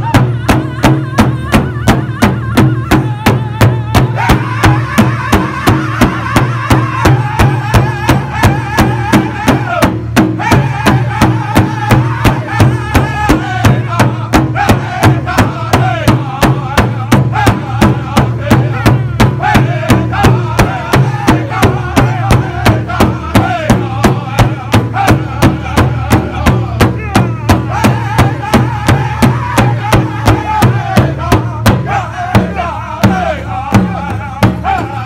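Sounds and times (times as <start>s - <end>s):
beaters striking large drum: 0.0s - 35.0s
high-pitched group singing: 0.0s - 35.0s.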